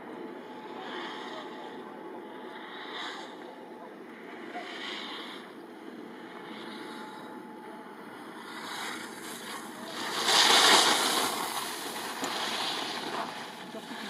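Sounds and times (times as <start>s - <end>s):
skis scraping on snow: 8.5s - 14.0s.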